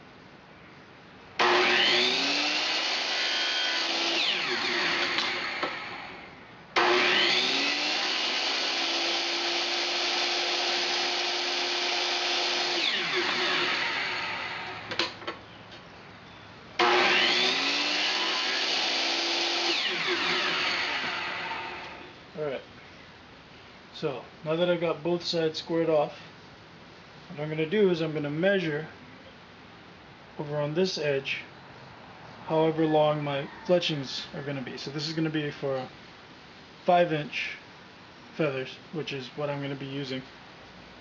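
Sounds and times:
miter saw cutting pipe: 1.4s - 15.1s, 16.8s - 22.0s.

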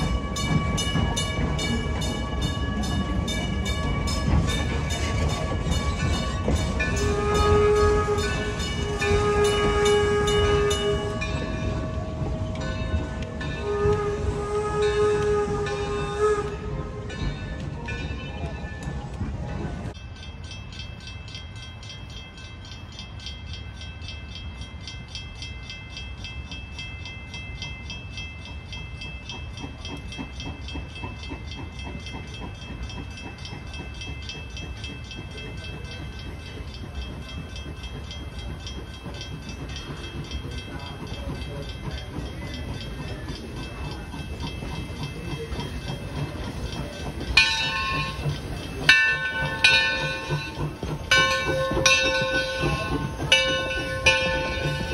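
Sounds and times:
steam locomotive hissing: 0.0s - 54.9s
steam whistle blasts: 7.0s - 11.4s, 13.5s - 17.2s.

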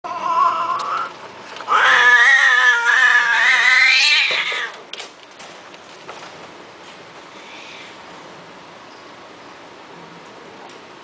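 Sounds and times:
cat yowling: 0.0s - 4.8s.

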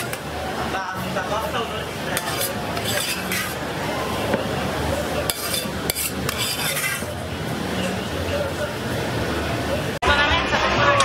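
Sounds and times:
background chatter: 0.0s - 11.0s
metal utensils clinking on pans: 2.2s - 3.6s, 5.3s - 7.1s.

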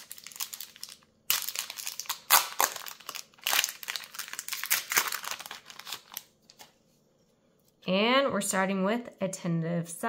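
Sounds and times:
foil wrapper crinkling: 0.0s - 6.7s.

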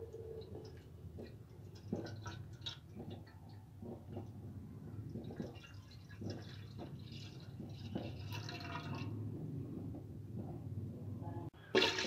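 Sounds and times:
milk pouring into metal pan: 5.2s - 9.2s, 11.7s - 12.0s.

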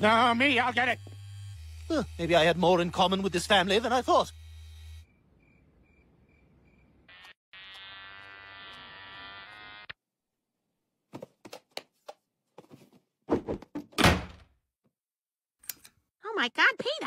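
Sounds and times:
electric hair clippers buzzing: 0.1s - 5.0s, 7.1s - 10.0s.

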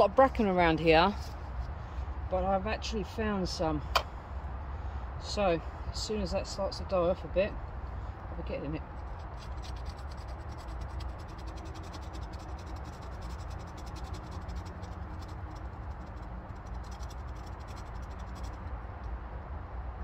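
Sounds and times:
knife scraping tinder card: 9.2s - 18.6s.

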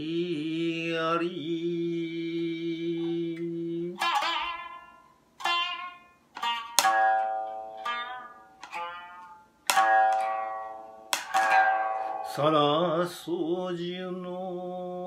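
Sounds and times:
man chanting: 0.0s - 4.1s, 12.3s - 15.0s
plucked lute strokes: 2.7s - 13.2s.

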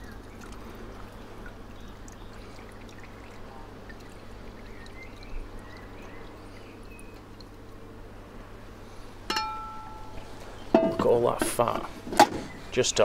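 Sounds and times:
fat trickling into a glass: 0.0s - 7.8s.

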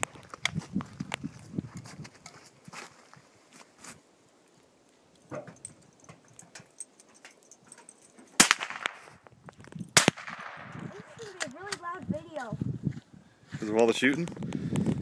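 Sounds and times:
rifle shots: 8.4s - 9.2s, 10.0s - 11.2s.

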